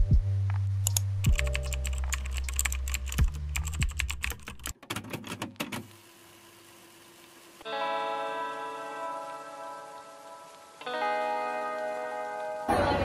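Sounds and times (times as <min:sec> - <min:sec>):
soft background music: 0:00.0 - 0:04.4, 0:07.6 - 0:13.0
typing on keyboard: 0:00.9 - 0:05.8.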